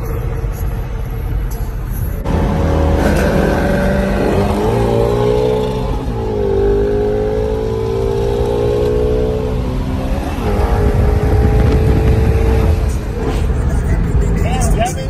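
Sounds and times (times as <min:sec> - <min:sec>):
car engine accelerating hard: 0:02.2 - 0:14.6.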